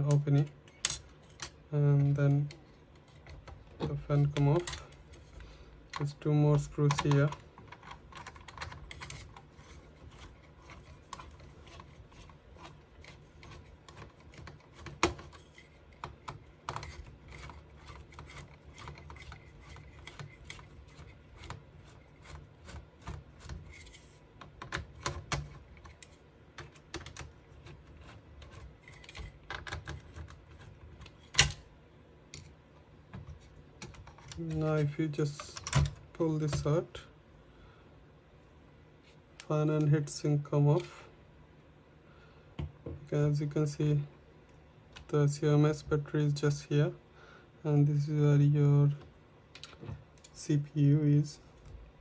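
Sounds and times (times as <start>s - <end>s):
screwdriver clicking and scraping: 6.8s - 31.6s.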